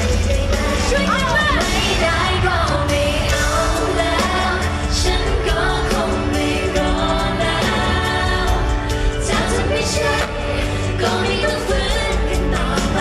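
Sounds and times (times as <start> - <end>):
drum beat and bass: 0.0 - 13.0
woman singing: 0.0 - 13.0.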